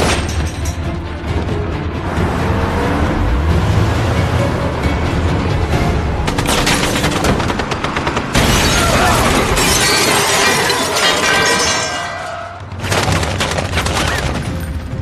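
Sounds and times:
glass shattering and tinkling: 8.6 - 12.4.

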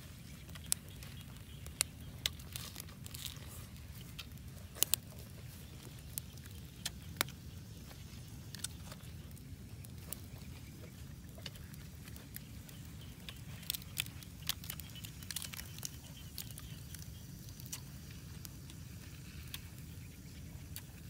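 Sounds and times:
fire crackling and popping: 0.0 - 21.0
steady low rumble: 0.0 - 21.0.

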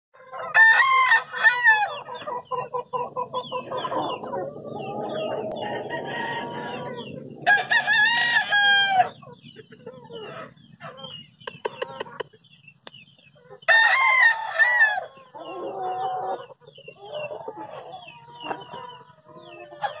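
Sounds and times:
rooster crowing: 0.2 - 2.0, 4.9 - 9.2, 13.7 - 15.2
chickens calling loudly: 0.2 - 20.0
chickens clucking quickly: 1.4 - 13.7, 15.1 - 20.0.

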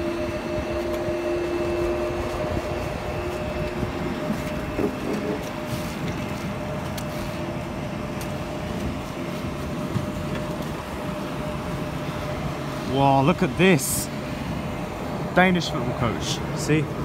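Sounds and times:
aircraft machine rumble and hum: 0.0 - 17.0.

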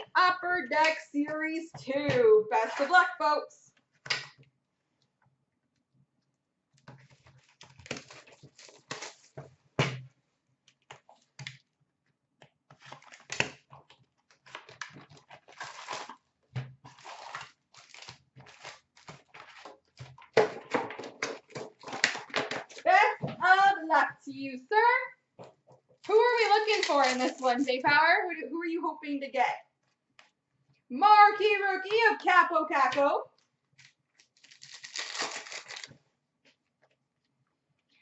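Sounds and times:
foil packs crinkling: 7.1 - 9.4, 14.3 - 16.3, 16.9 - 20.3, 26.1 - 27.7, 33.8 - 36.0
cardboard box tearing: 15.5 - 16.1, 16.9 - 18.8, 34.4 - 35.9.

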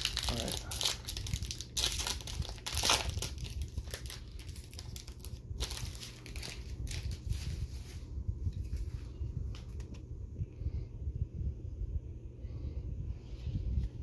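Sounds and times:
foil wrapper crinkling: 0.0 - 8.1.

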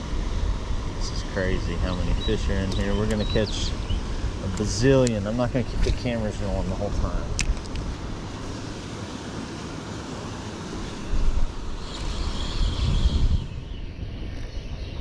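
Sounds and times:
wind buffeting microphone: 10.7 - 15.0.

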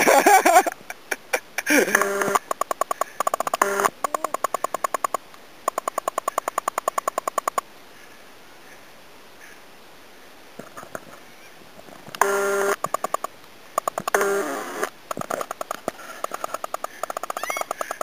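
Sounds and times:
rapid electronic beeps: 1.9 - 7.6, 12.2 - 14.9.

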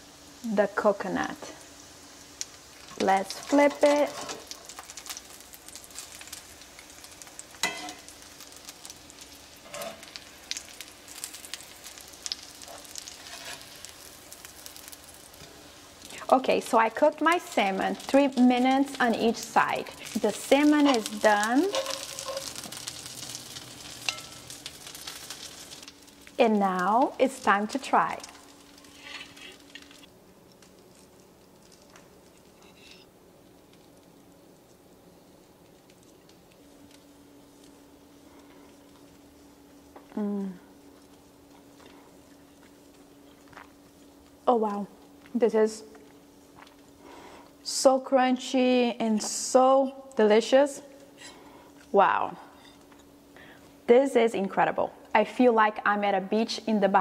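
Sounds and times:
fish sizzling in hot oil: 0.0 - 53.9
low steady hum: 0.0 - 57.0
metal tongs clacking on skillet: 7.5 - 8.1, 20.8 - 23.0, 23.8 - 24.6.

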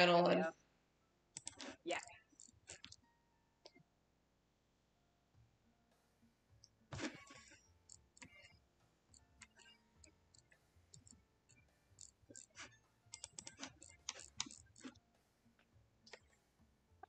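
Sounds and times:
computer mouse and keyboard clicks: 1.4 - 3.0, 7.0 - 8.5, 9.1 - 11.2, 12.0 - 15.0.

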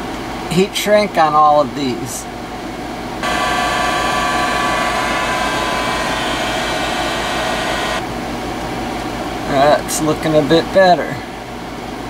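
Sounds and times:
heat gun fan whining: 3.2 - 8.3.

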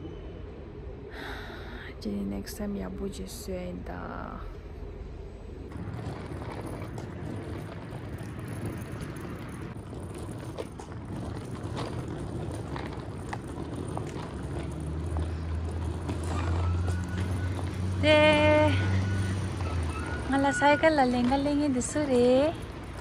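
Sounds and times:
wind rumble: 0.0 - 23.0
bicycle tyres rolling on road: 5.3 - 23.0.

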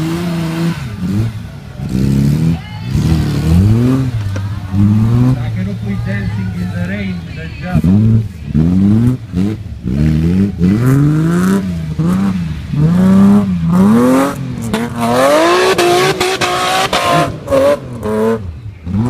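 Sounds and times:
off-road car engine revving: 0.0 - 19.0.

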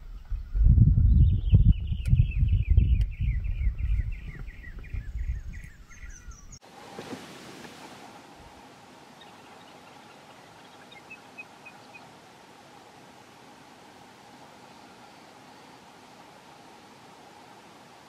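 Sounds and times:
faint bird chirps: 0.0 - 6.6
faint steady hiss: 5.5 - 18.0.

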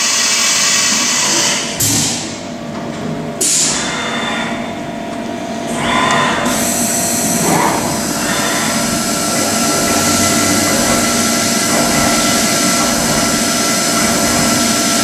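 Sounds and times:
machine whine: 3.4 - 15.0.

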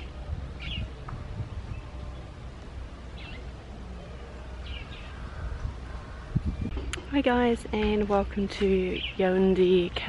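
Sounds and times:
steady low rumble: 0.0 - 10.0
bird chirping: 0.6 - 2.4, 3.1 - 7.1, 8.8 - 9.7.

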